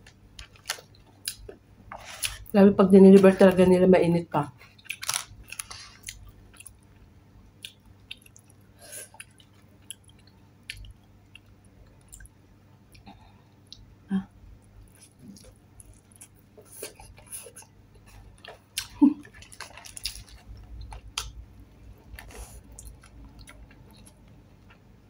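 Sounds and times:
chewing and lip smacks: 7.6s - 12.3s.

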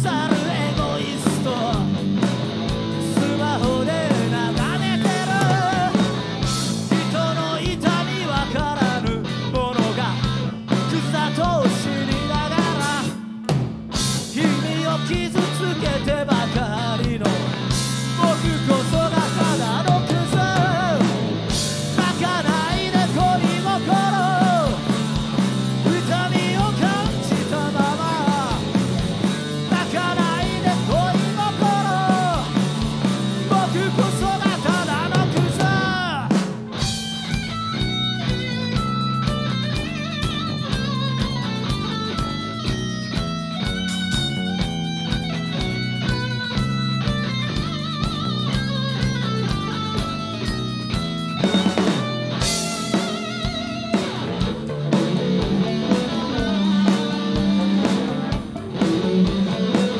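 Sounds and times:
rock band playing: 0.0s - 59.9s
lead electric guitar bending notes: 16.8s - 59.9s.

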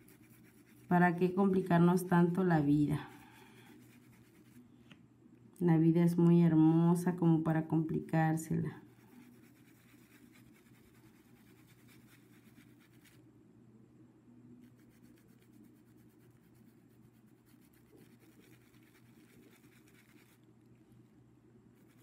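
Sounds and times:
paintbrush scratching on cloth: 0.0s - 4.6s, 8.8s - 13.2s, 14.6s - 20.5s, 21.7s - 22.0s
low steady hum: 0.0s - 22.0s.

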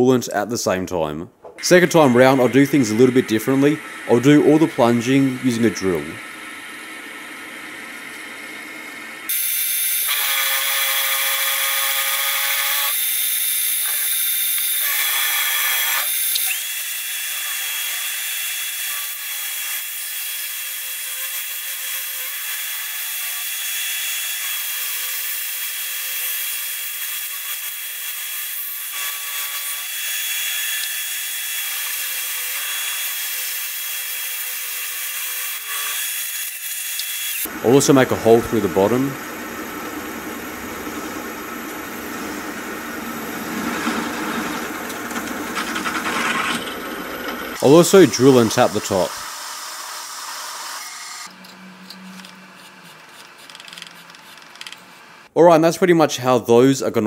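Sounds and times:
milling machine high whine: 1.6s - 10.8s, 37.4s - 49.7s.

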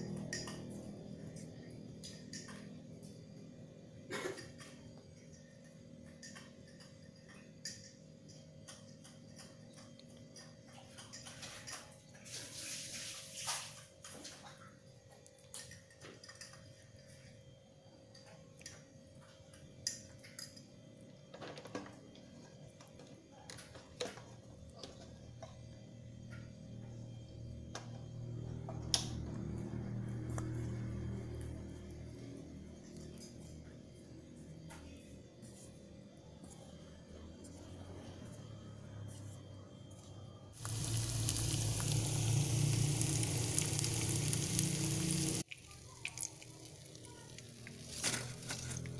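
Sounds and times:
hands working wet dough: 40.6s - 48.9s
low hum: 40.6s - 48.9s.

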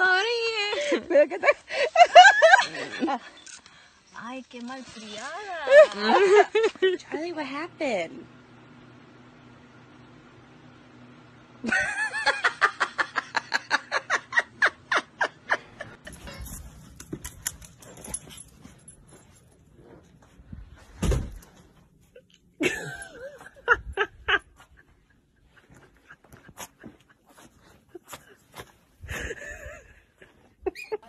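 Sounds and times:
person laughing: 11.6s - 16.1s, 22.2s - 31.0s
dull thump: 20.9s - 21.4s.

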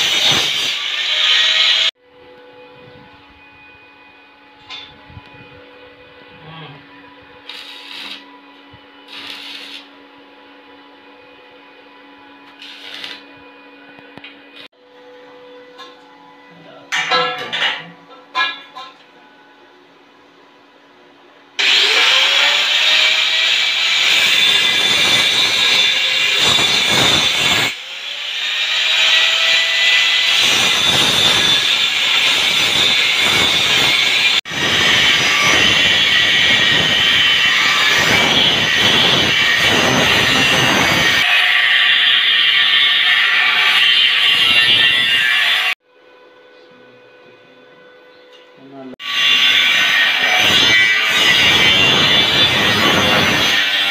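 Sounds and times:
welding arc hissing bursts: 0.0s - 1.9s, 7.4s - 8.2s, 9.1s - 9.9s, 12.6s - 13.2s
welding machine hum: 0.0s - 1.9s, 7.3s - 10.1s, 12.4s - 13.4s, 21.6s - 43.0s
angle grinder grinding steel: 0.0s - 2.0s, 6.3s - 10.0s, 12.2s - 14.7s, 21.6s - 45.8s, 49.0s - 53.9s.

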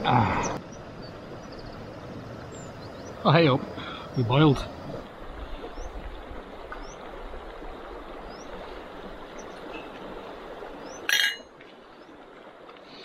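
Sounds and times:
bright metallic clink: 11.1s - 11.5s.

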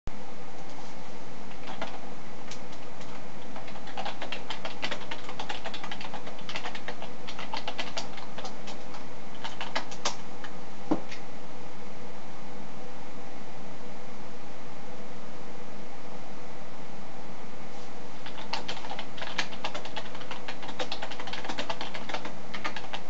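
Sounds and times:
keyboard typing: 1.5s - 10.2s, 18.2s - 23.0s.

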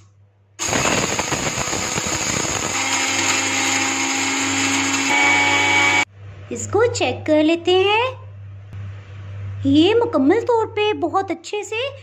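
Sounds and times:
blender grinding grains: 0.6s - 6.1s.

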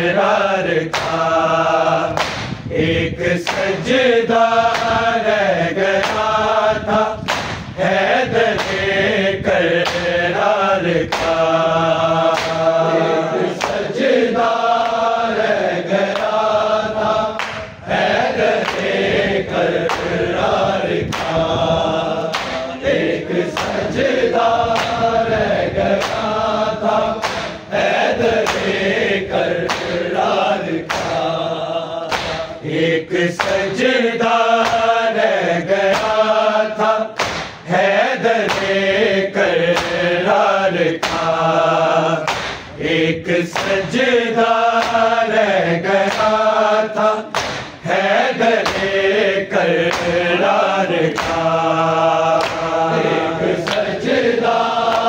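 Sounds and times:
men chanting: 0.0s - 55.0s
sharp percussive strikes: 2.2s - 2.6s, 22.3s - 22.8s, 27.2s - 27.7s, 30.9s - 31.3s, 32.1s - 32.6s, 37.2s - 37.7s, 42.2s - 42.8s, 47.3s - 47.8s.

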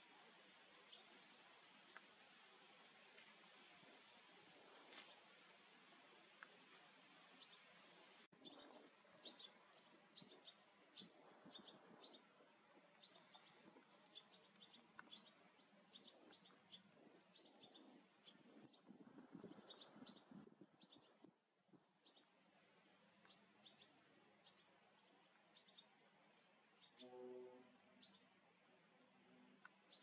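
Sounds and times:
swallows twittering: 8.4s - 21.3s.

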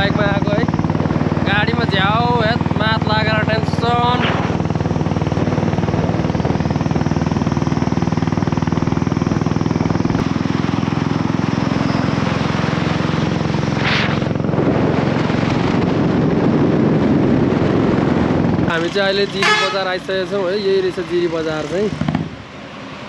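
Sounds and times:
motorcycle engine running: 0.0s - 22.5s
rushing noise: 0.0s - 23.0s
brief hiss: 13.8s - 14.2s.

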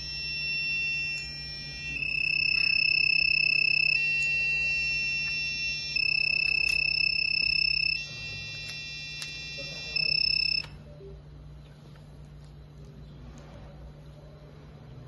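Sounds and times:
electronic buzzer beeping: 0.0s - 10.7s.

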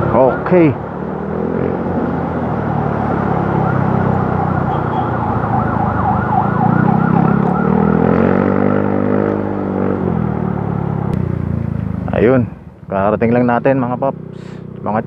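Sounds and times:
motorcycle engine running: 0.0s - 15.0s
siren yelping: 2.3s - 9.0s.

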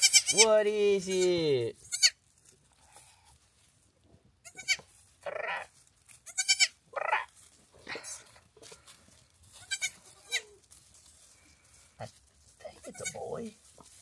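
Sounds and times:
goats bleating: 0.0s - 2.2s, 4.4s - 5.7s, 6.3s - 7.3s, 9.6s - 10.5s, 12.8s - 13.3s.

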